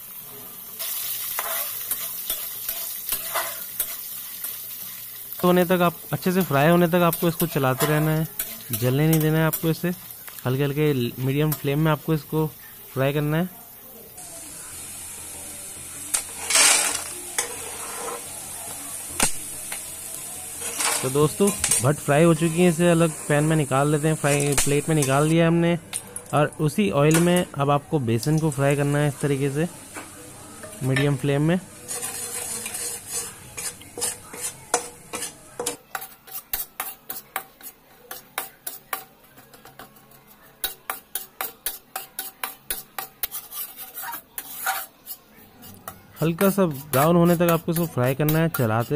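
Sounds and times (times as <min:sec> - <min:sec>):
beans sizzling in oil: 0:00.0 - 0:48.9
spatula scraping through beans: 0:00.8 - 0:04.6, 0:16.3 - 0:18.3, 0:31.8 - 0:39.0, 0:40.6 - 0:48.9
metal spatula clinking on pan: 0:31.9 - 0:45.2.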